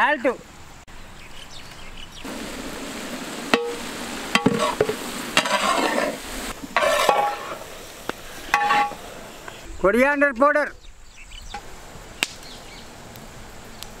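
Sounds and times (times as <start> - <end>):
metal ladle scraping pot: 3.5 - 7.7, 8.5 - 9.0.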